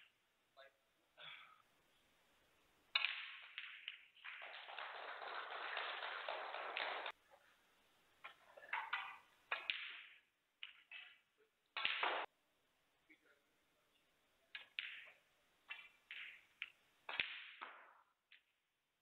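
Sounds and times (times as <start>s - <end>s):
snooker balls clicking: 2.9s - 7.2s, 8.2s - 12.3s, 14.5s - 18.5s
audience applauding: 4.4s - 7.2s.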